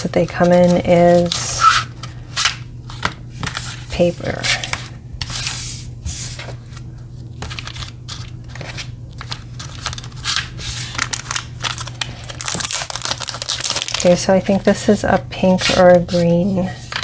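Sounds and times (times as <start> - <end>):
paper and cellophane rustling: 6.2 - 14.8.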